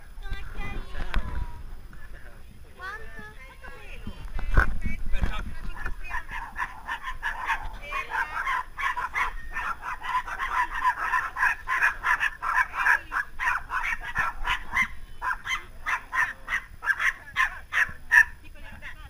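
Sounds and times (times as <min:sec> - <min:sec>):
dogs barking and yelping: 0:05.8 - 0:18.4.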